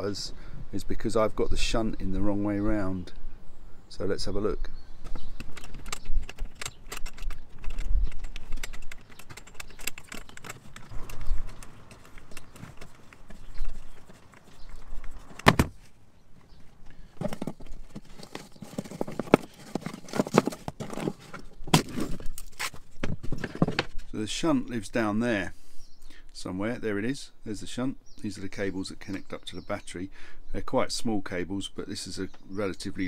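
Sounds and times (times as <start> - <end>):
hollow knocks and rattles: 5.0 - 15.8, 17.2 - 22.4.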